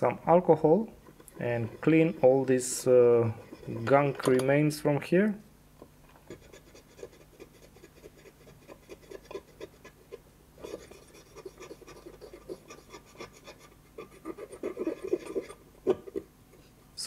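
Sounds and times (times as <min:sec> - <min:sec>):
cotton swab scratchy rubbing: 0:06.3 - 0:15.6.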